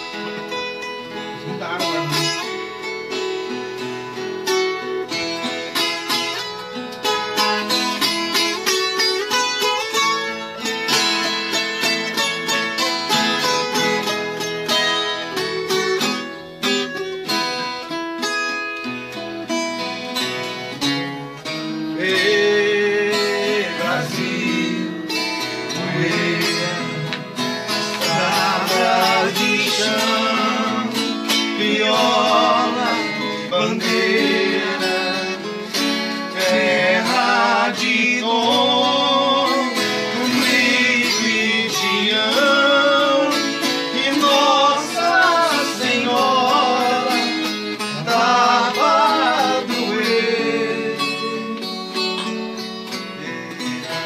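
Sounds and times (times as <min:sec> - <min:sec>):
guitar plucked and strummed: 0:00.0 - 0:54.0
men singing: 0:21.6 - 0:52.0.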